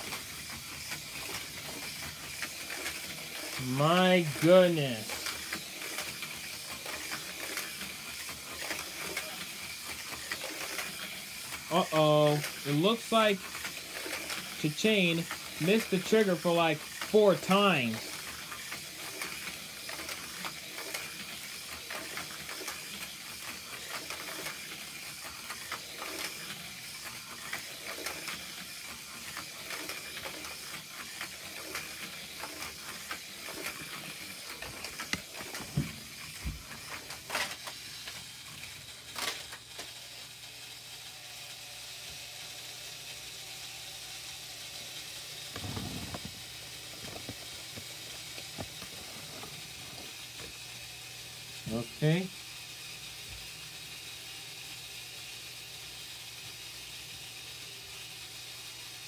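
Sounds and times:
toy cars rattling on plastic track: 0.0 - 59.0.

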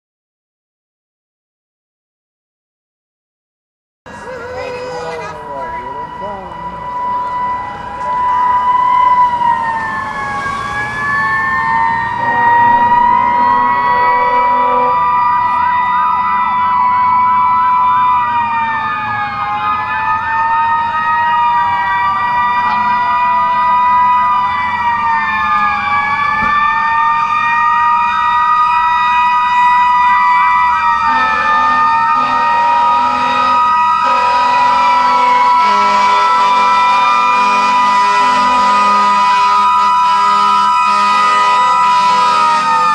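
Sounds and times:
fire engine sirens wailing: 4.1 - 42.9
low steady siren tone: 4.1 - 42.9.

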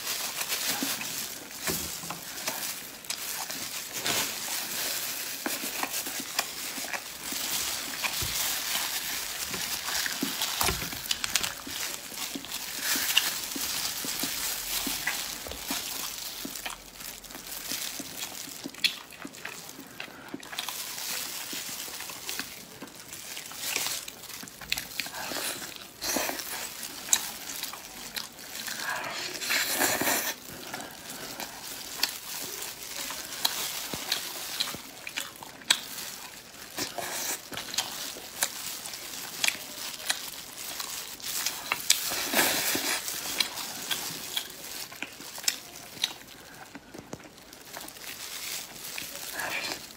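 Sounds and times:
meat pulled apart by gloved hands: 0.0 - 19.7
chewing with wet smacks: 0.0 - 49.9.

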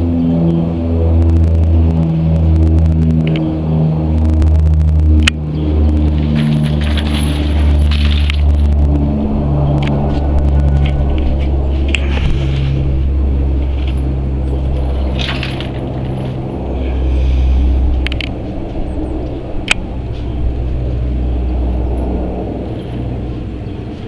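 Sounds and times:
turboprop engines droning overhead: 0.0 - 24.0.

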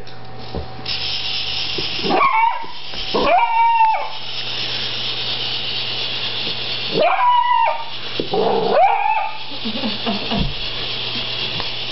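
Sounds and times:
dog whining yowls: 2.1 - 4.2, 6.9 - 9.4.

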